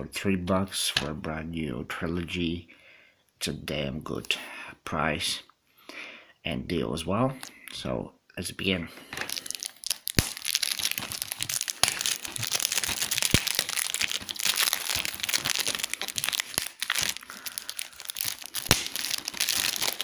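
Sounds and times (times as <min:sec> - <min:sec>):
plastic wrap tearing and crinkling: 0:09.1 - 0:20.0.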